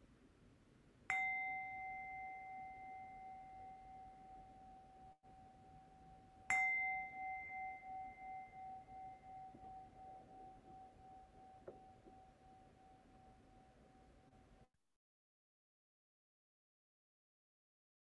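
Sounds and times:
meditation bell ringing: 1.1s - 14.7s.

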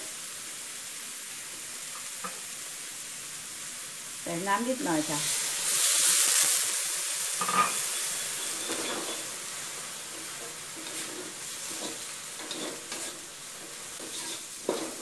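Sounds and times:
stir-fry sizzling in a wok: 0.0s - 15.0s
wooden spatula scraping a wok: 7.4s - 15.0s.

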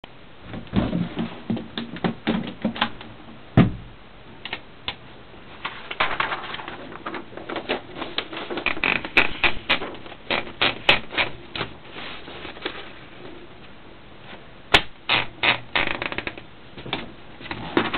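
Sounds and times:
heavy knock: 3.6s - 3.9s.

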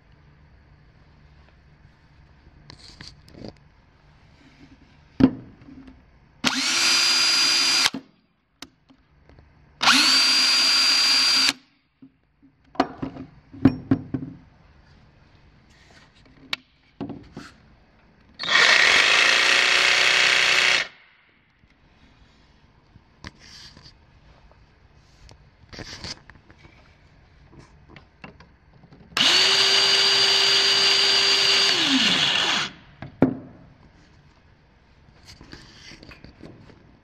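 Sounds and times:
cordless drill motor whine: 6.4s - 7.9s, 9.8s - 11.6s, 18.4s - 21.0s, 29.2s - 32.8s.

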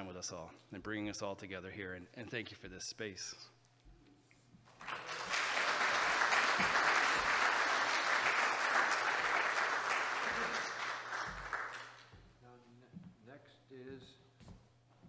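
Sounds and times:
audience applauding: 4.7s - 12.1s.

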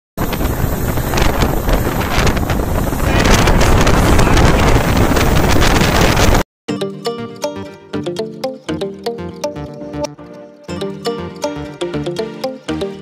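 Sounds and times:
wind rushing over microphone: 0.2s - 6.4s.

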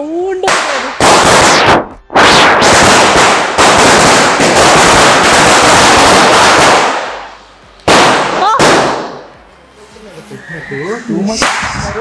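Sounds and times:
spinning firework hissing: 1.0s - 7.5s.

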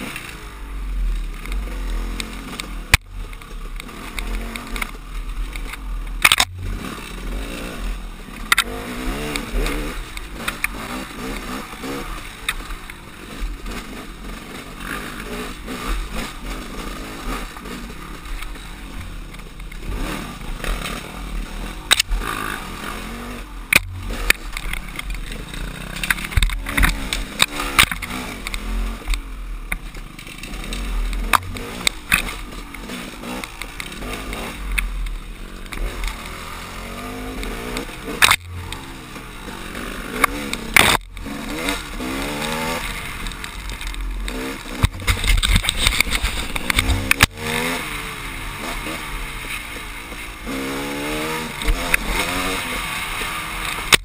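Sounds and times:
dirt bike engine revving: 0.0s - 54.0s
bike knocking on rough ground: 37.5s - 47.8s.

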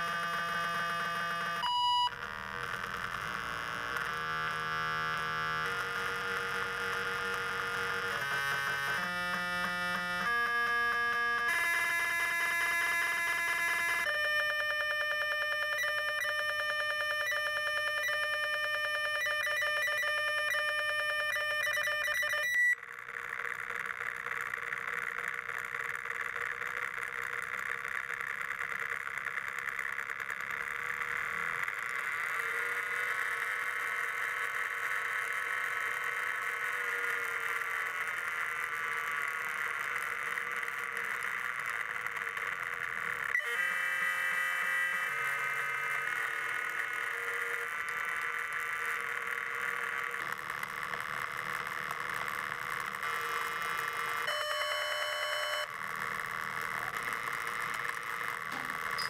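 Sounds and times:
synthesized electronic tones: 0.0s - 22.8s, 43.2s - 59.0s.

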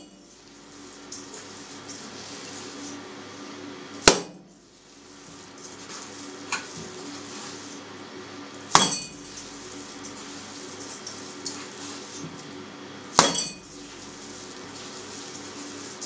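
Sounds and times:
meat slapping into metal bowl: 8.7s - 9.3s, 13.2s - 13.6s
metal bowl ringing: 8.8s - 9.4s, 13.2s - 13.7s.

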